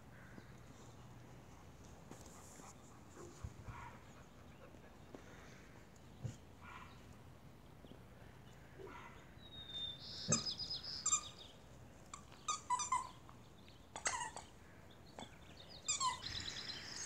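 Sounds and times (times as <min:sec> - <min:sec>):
puppies yelping and squealing: 0:14.0 - 0:14.6.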